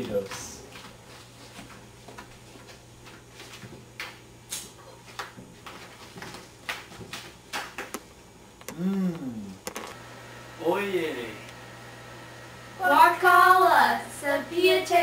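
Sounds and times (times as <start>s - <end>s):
low steady hum: 7.9s - 15.0s.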